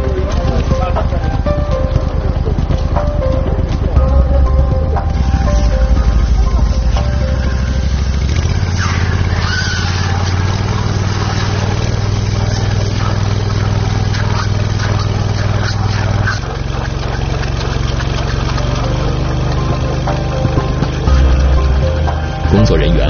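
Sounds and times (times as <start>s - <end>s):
steady engine hum: 0.0s - 23.0s
water jet splashing on hull: 7.5s - 22.1s.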